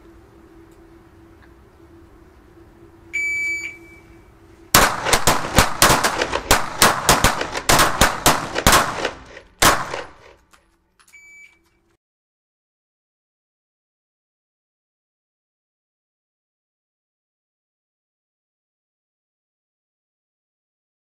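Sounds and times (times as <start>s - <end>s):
range timer beep: 3.1s - 4.2s, 11.1s - 11.6s
rapid pistol shots: 4.8s - 10.4s.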